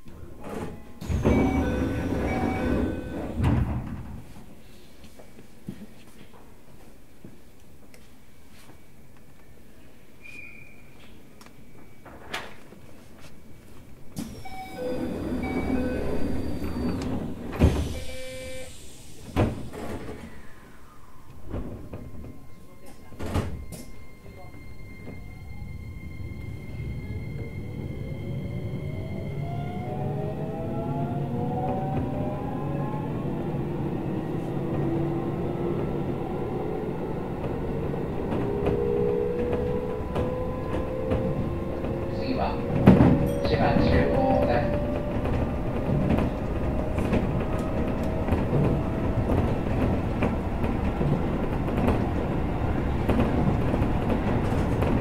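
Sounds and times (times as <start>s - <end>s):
train doors sliding: 0.0s - 4.5s, 14.1s - 24.2s, 31.6s - 55.0s
wheels rumbling on rail: 0.2s - 4.4s, 18.7s - 55.0s
door chime: 1.2s - 3.3s, 14.4s - 16.9s.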